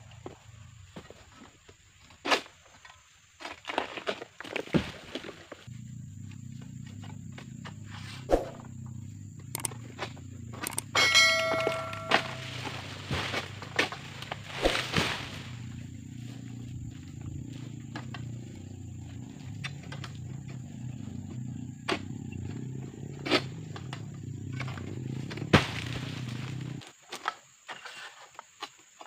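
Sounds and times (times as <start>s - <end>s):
steady low hum: 5.7s - 26.6s
blade snapping palm fronds: 12.4s - 15.6s.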